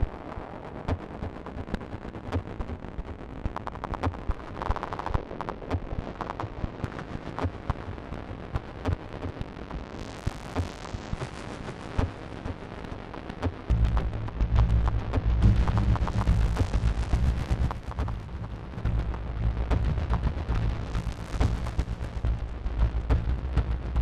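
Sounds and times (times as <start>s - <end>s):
crackling clicks: 0.0s - 24.0s
buzzy synth tone: 13.7s - 24.0s
rumbling noise bed: 13.7s - 24.0s.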